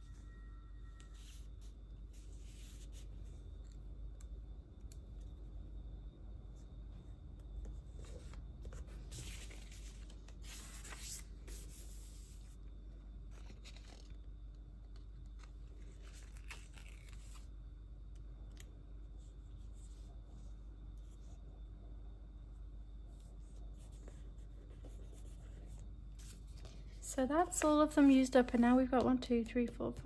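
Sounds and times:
low steady hum: 0:00.0 - 0:30.0
planner page turning: 0:13.4 - 0:14.2, 0:15.3 - 0:17.5
stickers peeled off backing: 0:15.2 - 0:17.5.

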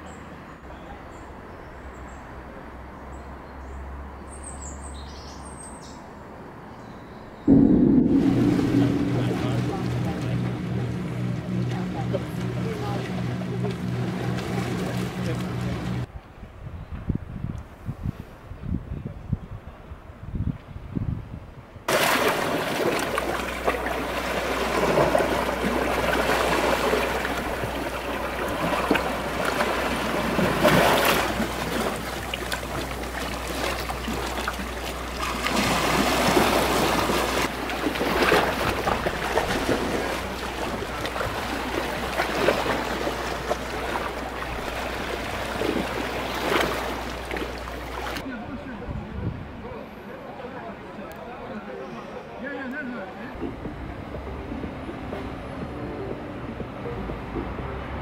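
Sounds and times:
low hum: 0:07.5 - 0:16.1
waves lapping against rocks: 0:21.9 - 0:48.2.

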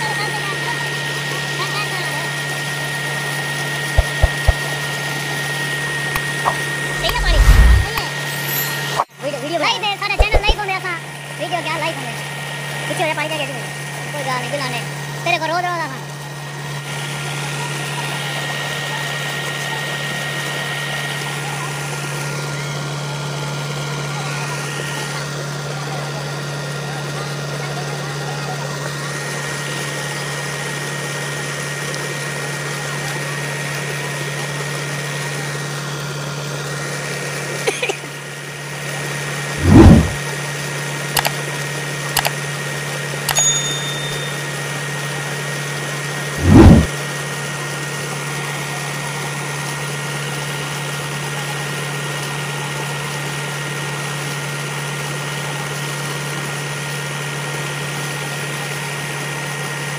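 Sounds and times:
loud thumps: 0:04.0 - 0:04.6, 0:10.2 - 0:10.6
sharp clicks: 0:04.0 - 0:04.6
diesel engine running: 0:04.0 - 0:04.8, 0:06.1 - 0:09.1, 0:39.5 - 0:40.2, 0:46.4 - 0:46.9
water gushing into pool: 0:04.0 - 0:04.8.

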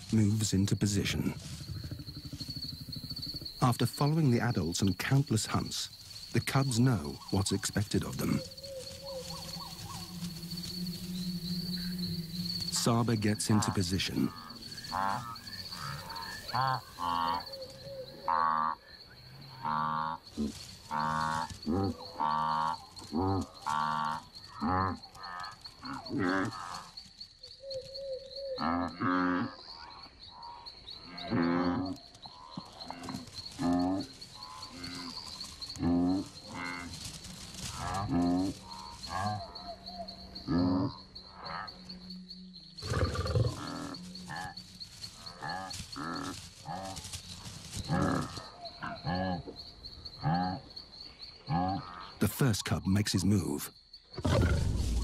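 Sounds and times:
high-pitched insect trill: 0:00.0 - 0:52.2, 0:52.8 - 0:55.0
wildebeest calling: 0:06.4 - 0:18.9, 0:19.5 - 0:26.9.

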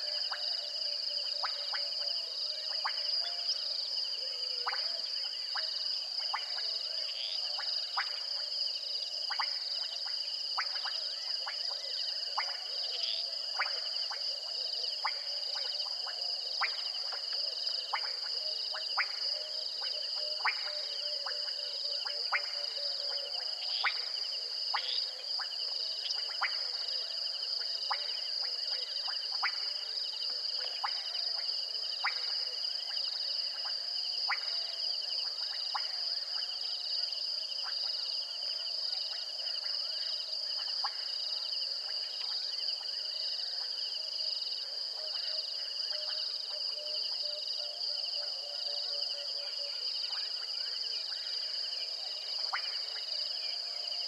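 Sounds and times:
frogs clicking calls: 0:04.6 - 0:06.7, 0:15.0 - 0:26.8, 0:27.5 - 0:29.8, 0:30.6 - 0:36.4, 0:52.3 - 0:53.4.

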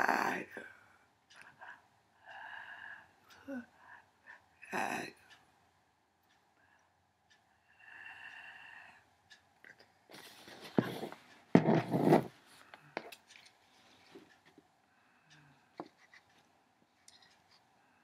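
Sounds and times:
light clicks and taps: 0:15.8 - 0:17.7.

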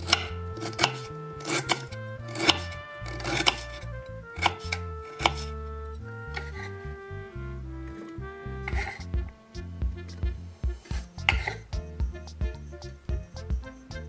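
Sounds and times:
knife chopping on wooden board: 0:00.0 - 0:03.8, 0:04.4 - 0:05.6, 0:10.2 - 0:11.6
soft background music: 0:00.0 - 0:14.0.

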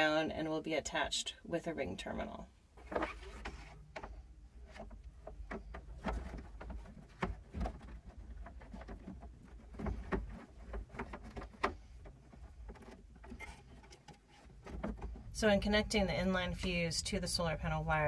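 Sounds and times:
wire handling clicks and rustles: 0:02.8 - 0:15.4.

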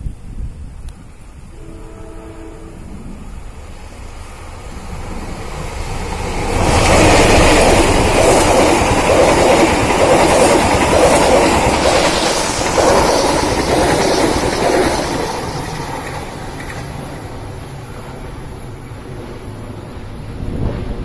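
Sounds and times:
diesel locomotive passing: 0:01.3 - 0:21.0.

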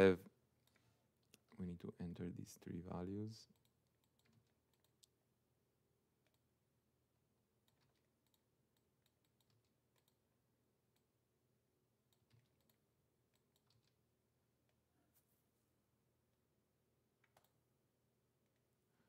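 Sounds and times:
keyboard and mouse clicks: 0:03.5 - 0:05.2, 0:06.2 - 0:06.5, 0:07.6 - 0:10.2, 0:12.1 - 0:14.0, 0:17.2 - 0:17.6.

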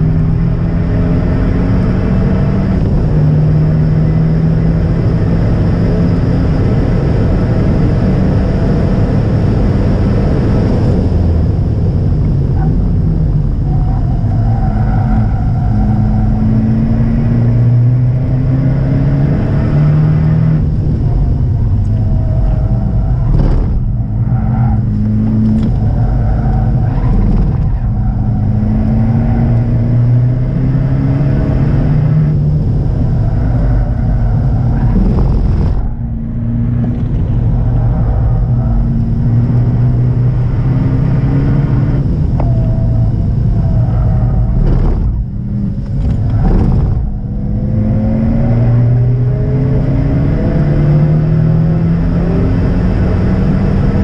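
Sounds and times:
car engine revving: 0:00.0 - 0:54.0
road and wind noise: 0:00.0 - 0:54.0.

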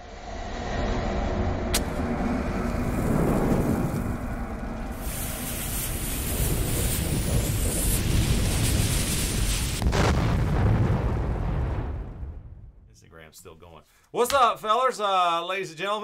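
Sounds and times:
low rumble with fiery hiss: 0:00.0 - 0:13.2
fuse sizzling hiss: 0:02.9 - 0:09.8.

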